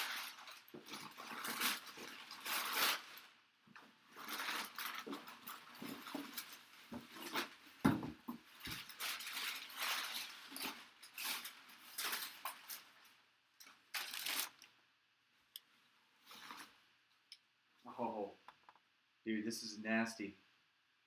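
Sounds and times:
packing paper rustling: 0.0s - 7.8s, 8.4s - 14.7s.

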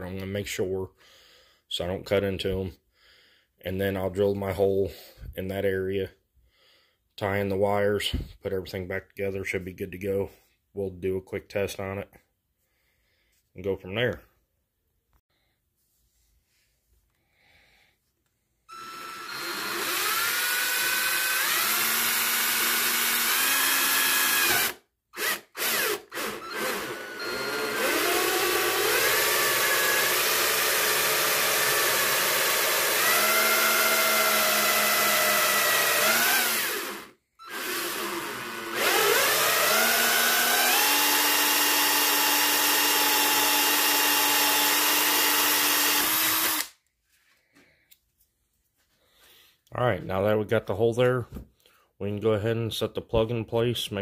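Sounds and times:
cordless drill cutting plastic: 18.7s - 46.8s.

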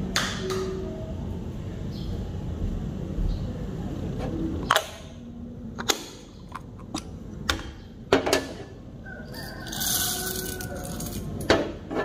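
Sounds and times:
hard objects clicking: 9.6s - 11.5s.

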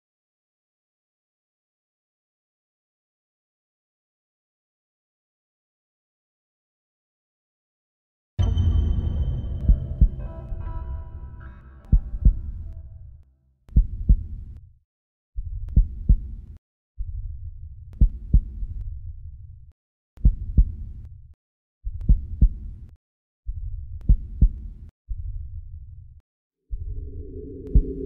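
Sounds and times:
heartbeat thumps: 9.6s - 11.0s, 11.9s - 12.8s, 13.7s - 14.4s, 15.5s - 16.4s, 18.0s - 18.7s, 20.2s - 20.9s, 21.9s - 22.7s, 23.6s - 24.6s, 26.7s - 28.0s.

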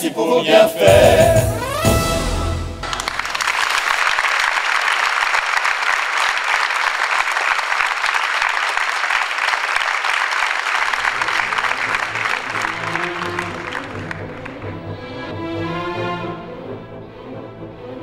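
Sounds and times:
music: 0.5s - 3.4s, 11.2s - 18.0s
audience applauding: 2.8s - 15.0s.

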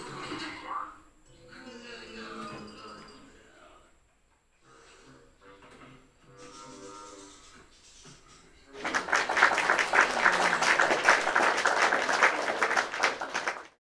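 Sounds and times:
crowd applause: 8.8s - 13.8s.

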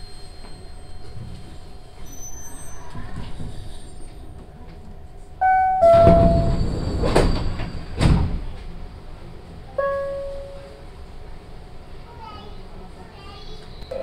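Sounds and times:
single chime note: 5.4s - 6.6s, 9.8s - 10.8s
two-note door chime: 5.4s - 6.6s, 9.8s - 10.8s
sliding doors opening: 5.4s - 8.8s.

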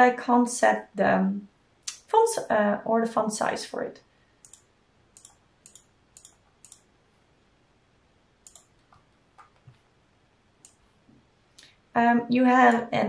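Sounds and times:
faint computer mouse clicks: 4.4s - 6.9s, 8.4s - 9.8s.

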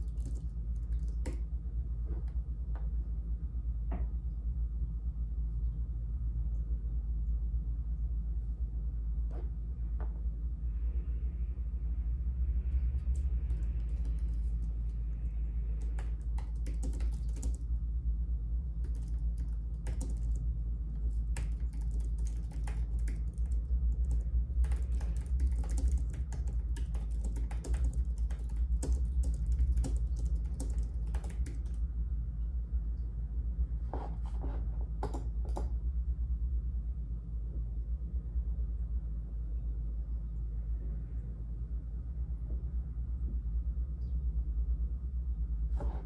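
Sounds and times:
keyboard typing: 0.0s - 1.4s, 13.0s - 15.0s, 15.7s - 17.7s, 18.8s - 20.4s, 21.0s - 31.8s, 35.0s - 35.7s
low rumble: 0.0s - 34.1s, 34.7s - 46.0s.

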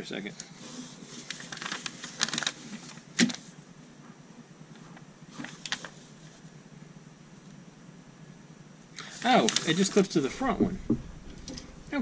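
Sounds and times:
paper sheet rustling and crackling: 0.5s - 3.6s, 5.3s - 6.4s, 9.1s - 12.0s.

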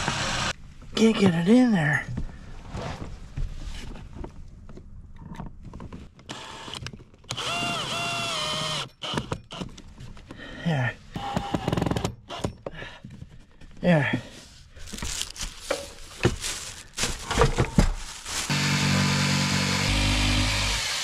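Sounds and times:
power drill whining: 0.0s - 0.5s, 6.3s - 9.6s, 11.2s - 12.6s, 18.5s - 21.0s.

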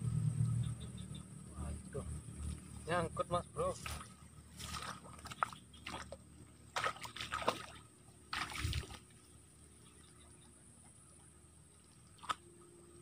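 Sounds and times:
sloshing in shallow water: 3.6s - 13.0s
swishing through wet grass: 3.7s - 6.1s.

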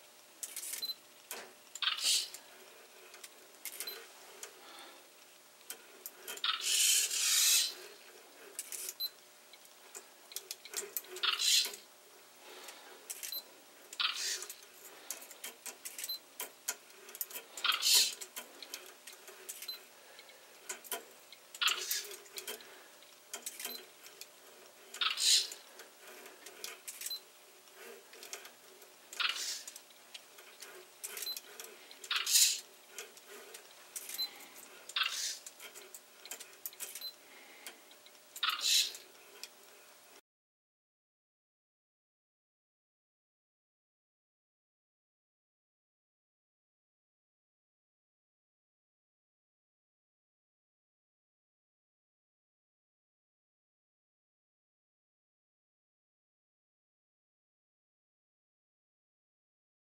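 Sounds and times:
servo motors whirring: 6.2s - 7.8s, 30.5s - 35.4s.

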